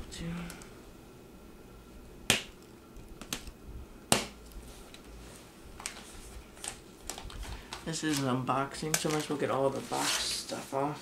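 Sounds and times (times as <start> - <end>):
sharp snaps of cardboard: 2.3 - 2.6, 4.1 - 4.4.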